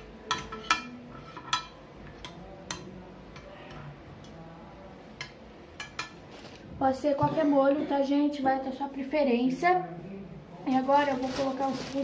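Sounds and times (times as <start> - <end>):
metal spoon clinking on dishes: 0.2 - 4.4, 5.2 - 6.2.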